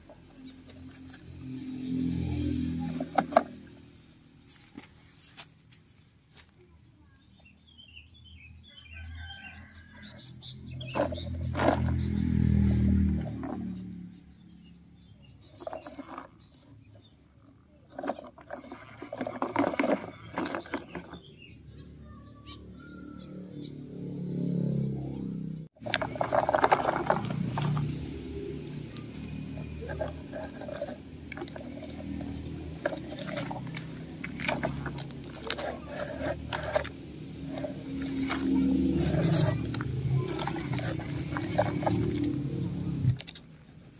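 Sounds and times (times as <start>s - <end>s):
toy truck wheels crunching over dirt: 10.1s - 14.0s, 15.2s - 21.6s, 25.8s - 43.9s.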